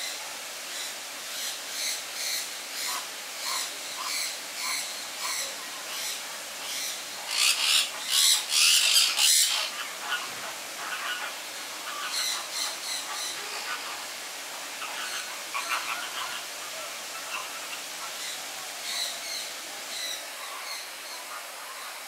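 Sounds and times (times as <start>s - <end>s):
flamingos honking: 7.3s - 19.4s.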